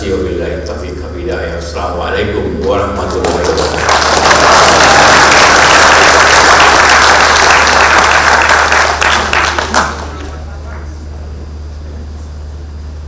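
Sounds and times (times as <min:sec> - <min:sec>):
audience applauding: 0:03.1 - 0:10.5.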